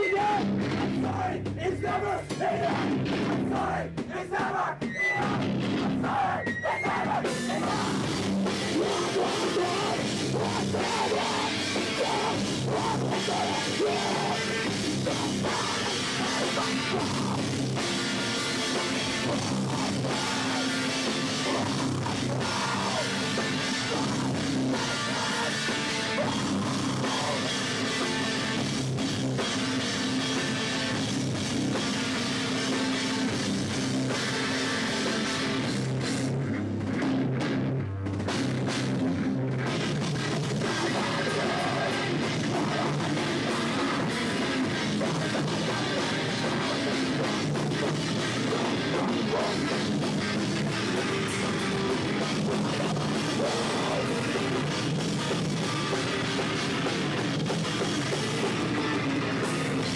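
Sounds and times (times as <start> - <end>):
bass guitar: 0.0 - 59.9
distorted electric guitars: 0.0 - 59.9
drum kit: 0.0 - 59.9.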